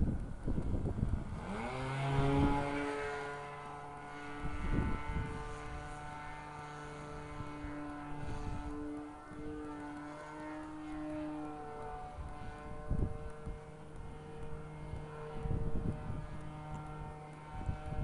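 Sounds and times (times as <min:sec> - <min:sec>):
model airplane engine buzzing: 0:00.0 - 0:18.0.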